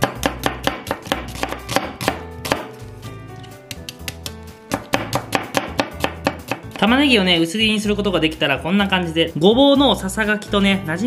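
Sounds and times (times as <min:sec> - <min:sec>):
knife slicing onion on board: 0:00.0 - 0:02.8, 0:03.6 - 0:06.9.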